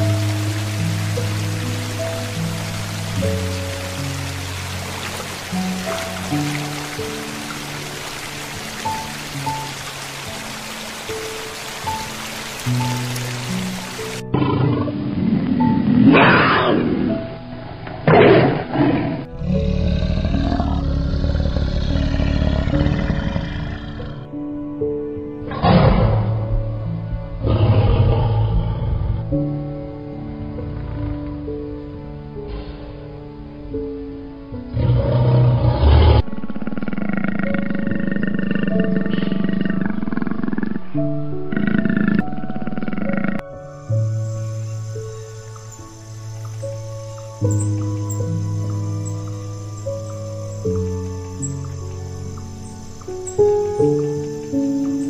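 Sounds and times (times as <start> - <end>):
background music: 0.0 - 55.0
tiger roaring: 14.3 - 17.2, 17.9 - 24.2, 25.5 - 26.5, 27.4 - 29.3, 34.7 - 40.9, 41.5 - 43.4
big cat growling: 14.3 - 24.3, 25.5 - 26.5, 27.4 - 29.4, 34.7 - 43.4
rasping pulsing growl: 17.9 - 24.3, 27.4 - 29.5, 34.7 - 43.4.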